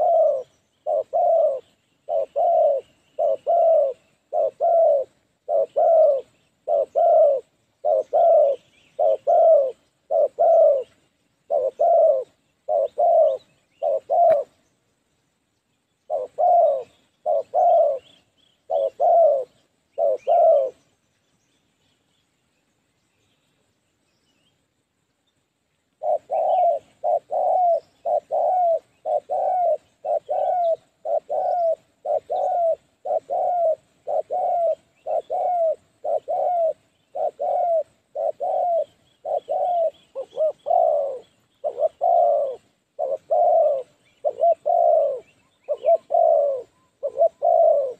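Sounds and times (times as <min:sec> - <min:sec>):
dove cooing: 0:00.0 - 0:14.6, 0:16.0 - 0:21.0, 0:26.0 - 0:47.9.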